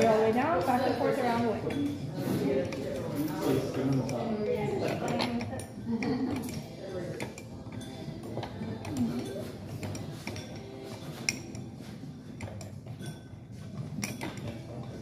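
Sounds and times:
spoon clinking against glass jar: 0:08.8 - 0:11.7.

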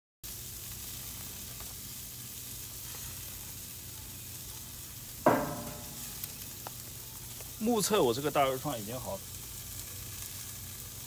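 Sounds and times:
meat sizzling on charcoal grill: 0:00.2 - 0:11.0.

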